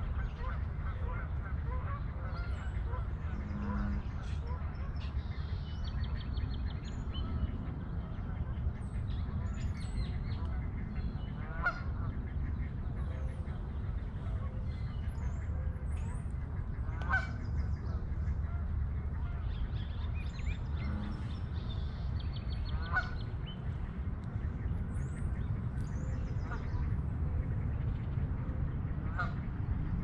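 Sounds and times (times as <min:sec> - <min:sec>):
steady low rumble: 0:00.0 - 0:30.0
goose honking: 0:00.2 - 0:04.6, 0:11.5 - 0:12.1, 0:16.8 - 0:17.4, 0:22.7 - 0:23.2, 0:29.1 - 0:29.4.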